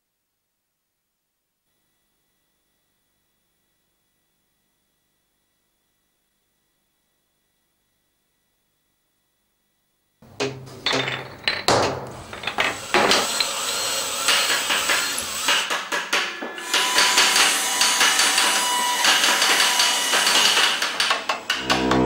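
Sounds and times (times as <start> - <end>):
hammering and tool clattering: 10.2 - 22.0
pipe organ chord: 21.6 - 22.0.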